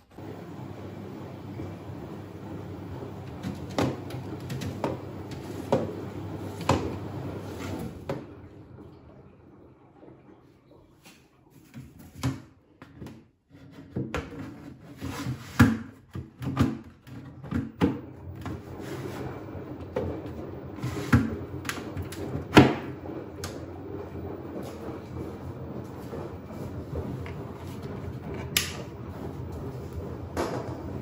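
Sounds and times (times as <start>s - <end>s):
steady low hum: 0.0s - 9.5s, 18.2s - 31.0s.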